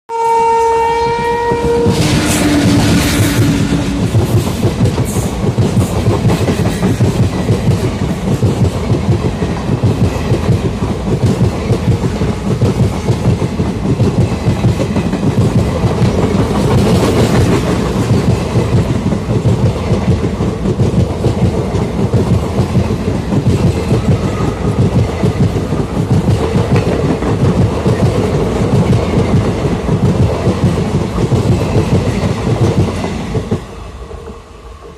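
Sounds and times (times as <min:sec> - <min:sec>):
two-tone locomotive horn: 0:00.1 - 0:04.4
train passing with rolling rumble: 0:00.3 - 0:34.9.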